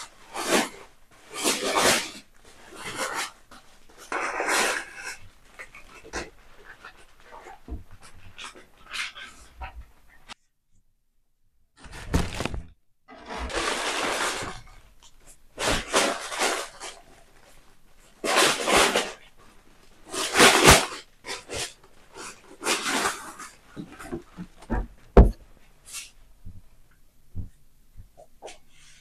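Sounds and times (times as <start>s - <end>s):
plastic and paper crinkling: 11.8s - 25.4s.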